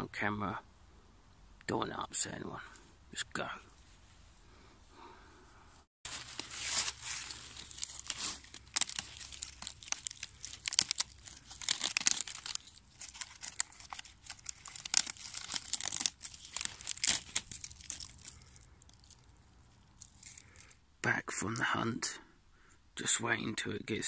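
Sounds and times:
bark tearing and crackling: 6.1 - 20.8.

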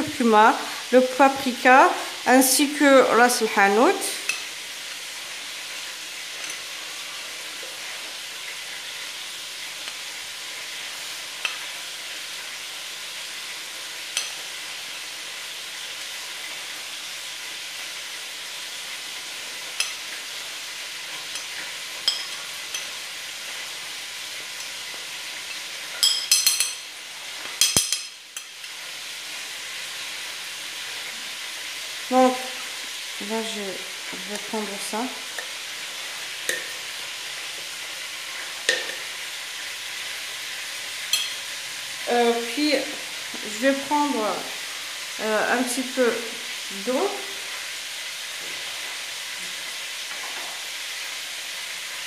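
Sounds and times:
meat sizzling in butter: 0.0 - 52.0
metal spoon tapping glass: 26.0 - 26.8, 38.7 - 39.0, 41.1 - 41.4.

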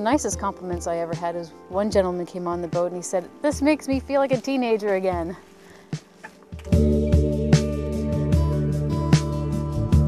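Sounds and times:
steady beat: 6.0 - 9.3
sustained chords: 6.7 - 9.6.

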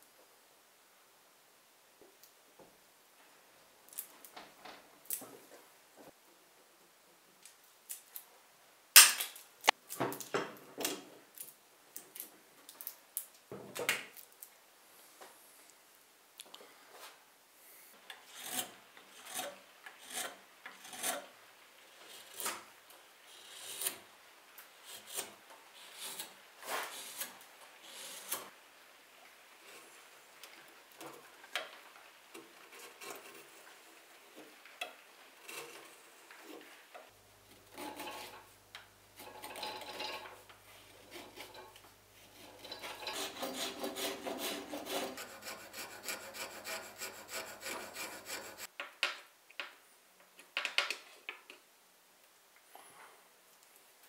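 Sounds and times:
knife scraping wood: 18.2 - 21.3, 23.4 - 24.0, 24.8 - 28.5, 32.6 - 33.6, 35.4 - 36.6, 37.5 - 38.5, 39.2 - 48.7.

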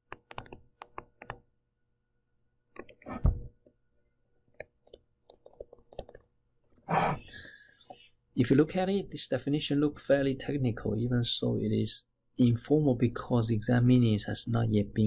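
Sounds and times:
stylus tapping on pen tablet: 0.0 - 1.4.

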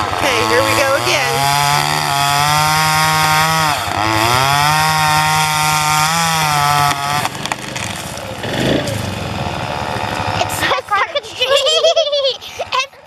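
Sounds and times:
chainsaw cutting wood: 0.0 - 11.3.

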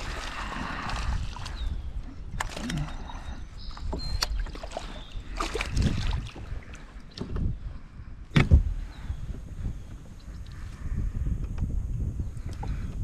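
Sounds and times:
water and wind rumble: 0.0 - 13.0
knocks against kayak hull: 8.3 - 8.7.

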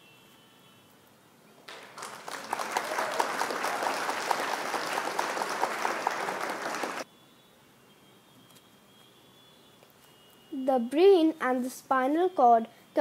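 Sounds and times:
crowd clapping: 1.6 - 7.1.

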